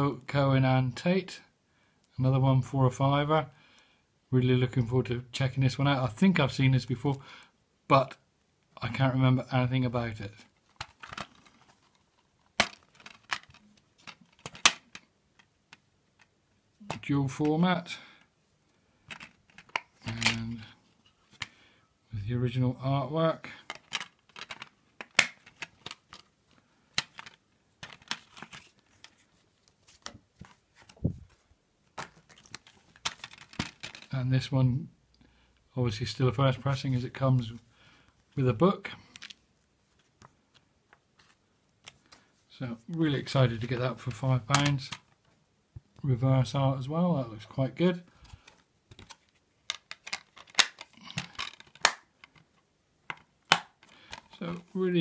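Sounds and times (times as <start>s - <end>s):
booklet pages rustling: 10.4s - 16.3s, 23.6s - 34.1s, 38.3s - 45.3s, 48.1s - 55.0s
plastic cases clicking and clacking: 10.7s - 17.7s, 19.0s - 20.6s, 23.6s - 26.3s, 26.9s - 29.2s, 31.9s - 34.1s, 43.6s - 45.3s, 48.2s - 54.8s
plastic case clicks: 12.6s - 15.1s, 23.7s - 26.3s, 48.9s - 52.5s, 53.1s - 54.3s.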